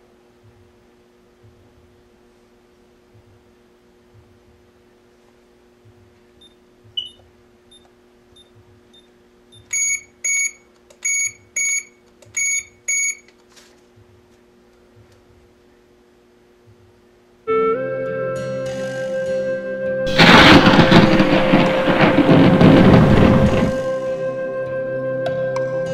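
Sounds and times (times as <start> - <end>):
alarm chirp: 9.0 - 13.2.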